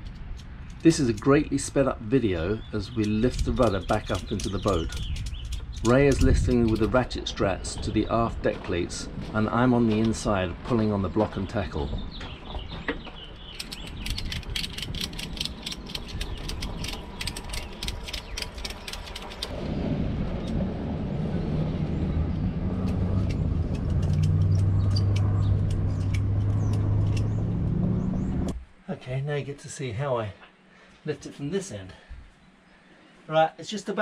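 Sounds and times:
ratchet straps clicking: 0:00.0 - 0:01.4, 0:02.6 - 0:07.0, 0:13.2 - 0:19.6, 0:22.8 - 0:27.4.

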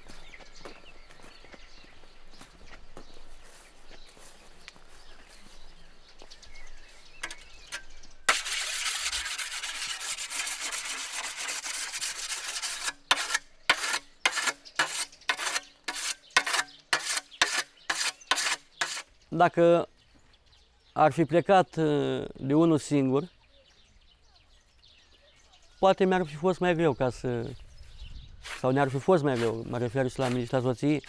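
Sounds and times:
whetstone honing scythe blade: 0:12.3 - 0:19.0.

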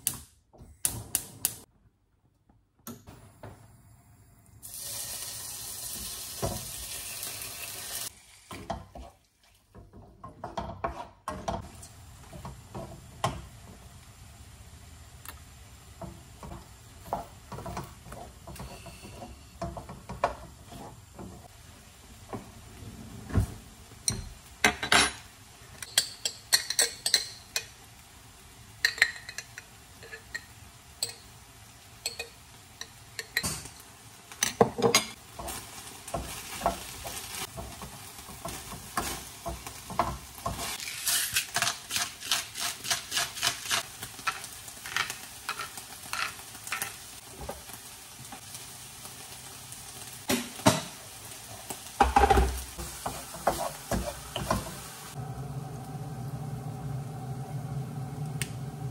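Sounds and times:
chicken sizzling in a wok: 0:04.0 - 0:09.2, 0:11.6 - 0:22.8, 0:25.2 - 0:58.9
spatula scraping stirring strokes: 0:17.2 - 0:21.5, 0:52.8 - 0:55.2
spoon clinking against pan: 0:32.0 - 0:33.7.

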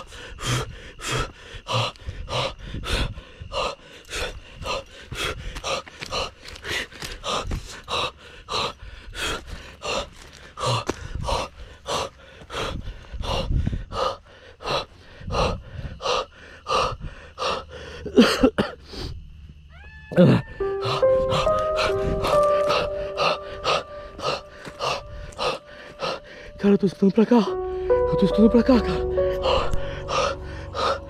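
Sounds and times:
person gasping for breath: 0:20.8 - 0:26.6, 0:28.8 - 0:31.0.

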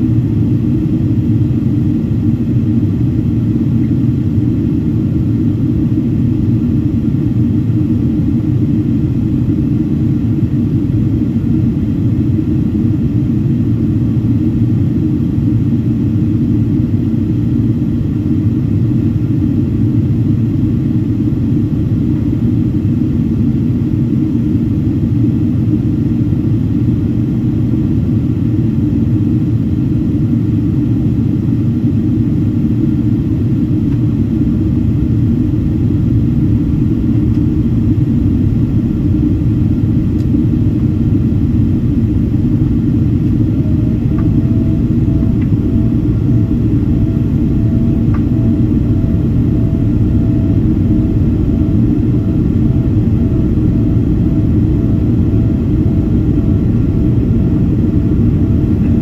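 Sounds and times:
airplane cabin engine rumble: 0:00.0 - 0:59.0
faint pulsing tone: 0:33.8 - 0:59.0.

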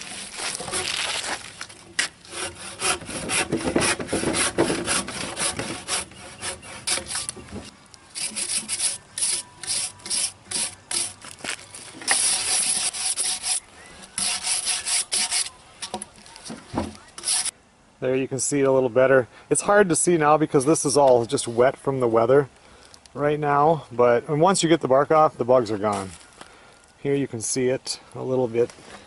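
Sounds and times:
bark scraped off log: 0:00.0 - 0:17.5
stiff wire brush strokes: 0:00.0 - 0:17.5.

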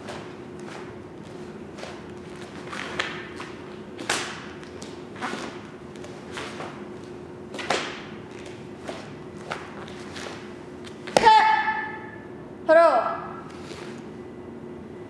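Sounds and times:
faint hum: 0:00.0 - 0:15.0
uniform snapping: 0:07.5 - 0:10.3.

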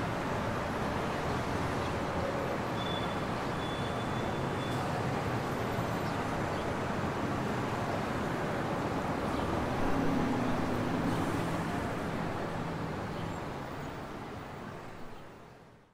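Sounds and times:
distant road traffic hum: 0:00.0 - 0:15.8.

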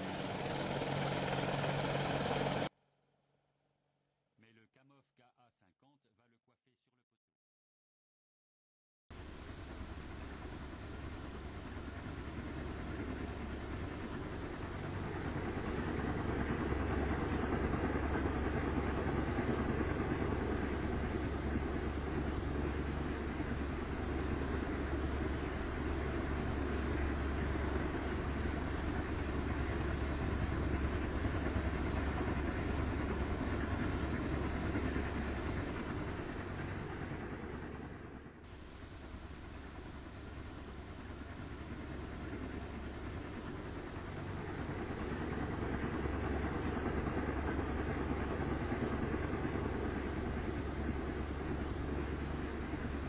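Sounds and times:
engine rumble: 0:00.0 - 0:02.7
helicopter running: 0:00.0 - 0:02.7, 0:09.2 - 0:53.0
low hum: 0:00.0 - 0:02.7, 0:09.2 - 0:53.0.

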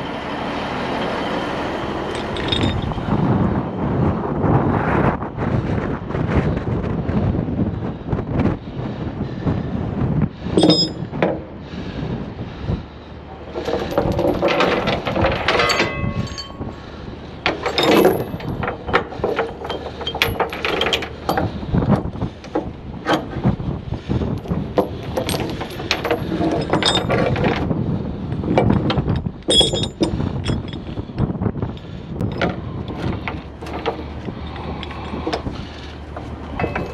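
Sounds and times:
steel chains clanking on metal: 0:02.1 - 0:03.1, 0:10.6 - 0:11.5, 0:13.4 - 0:23.6, 0:24.3 - 0:27.7, 0:28.4 - 0:36.9.

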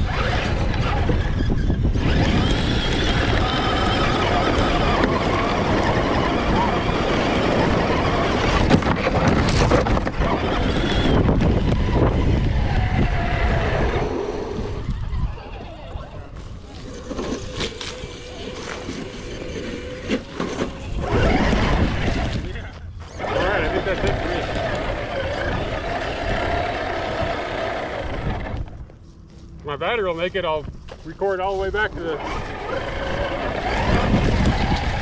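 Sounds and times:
toy truck motor whining: 0:00.0 - 0:28.8, 0:31.9 - 0:35.0
chassis rumbling on rough ground: 0:00.0 - 0:35.0.

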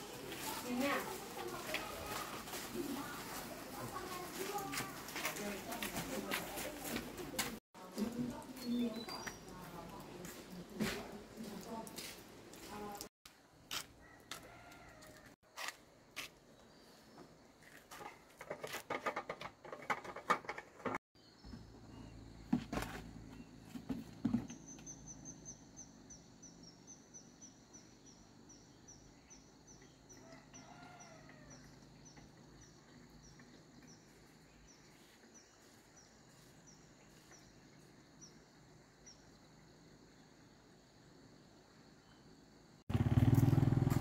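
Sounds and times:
clattering and knocks: 0:18.0 - 0:21.0.

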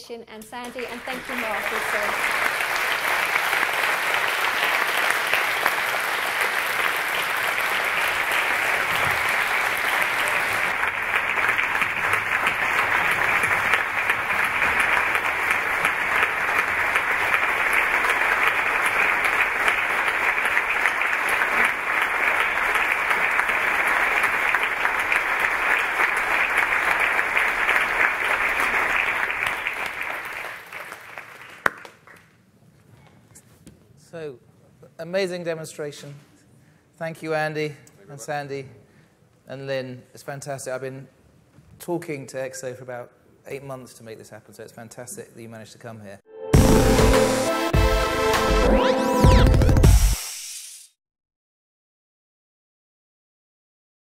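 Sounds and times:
large audience clapping: 0:00.4 - 0:32.4.

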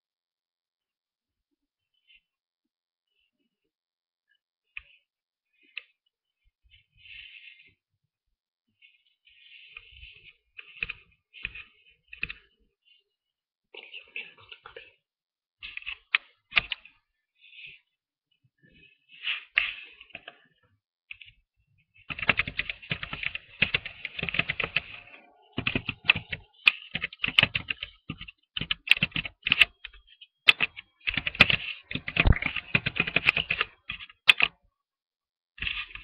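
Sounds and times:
typing on computer keyboard: 0:22.1 - 0:34.6.

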